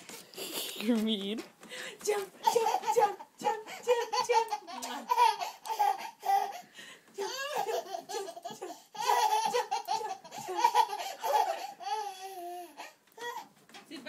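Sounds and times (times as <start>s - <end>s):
baby laughing: 2.4s - 13.4s.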